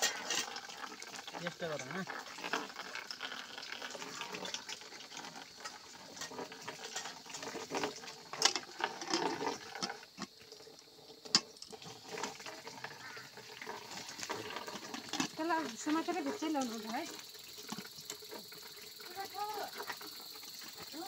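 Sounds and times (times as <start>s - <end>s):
metal utensils clinking and scraping: 0.0s - 0.8s, 5.6s - 10.0s.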